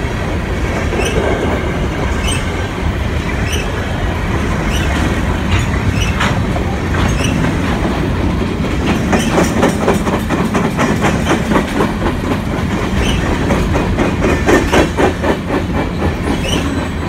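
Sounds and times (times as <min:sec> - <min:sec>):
train wheels rumbling on rail: 0:00.0 - 0:17.0
wheels clacking over rail joints: 0:00.0 - 0:17.0.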